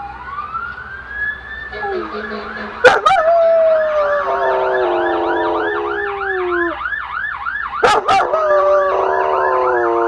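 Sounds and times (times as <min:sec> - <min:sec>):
siren rising and falling: 0:00.0 - 0:10.0
dog howling: 0:02.8 - 0:06.8, 0:07.8 - 0:10.0.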